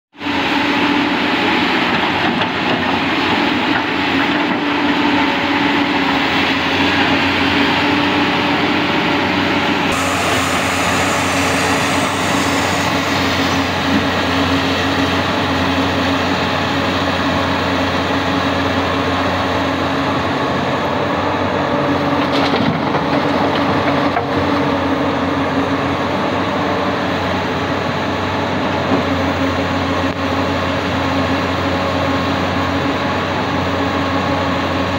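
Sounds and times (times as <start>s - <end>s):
excavator diesel engine running: 0.2s - 34.9s
hiss: 9.9s - 13.9s.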